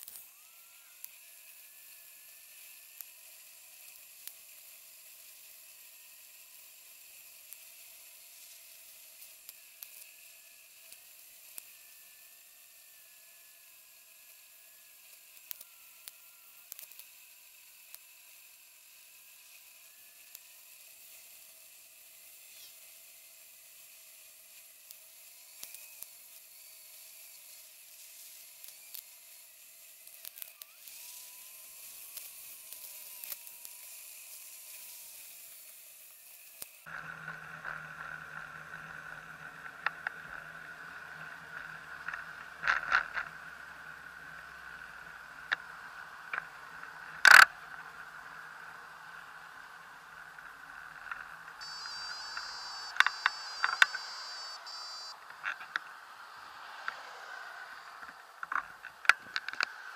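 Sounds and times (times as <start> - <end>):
steady hum: 36.9 - 55.8
bicycle ride hiss: 40.0 - 59.9
clicks: 50.4 - 55.9.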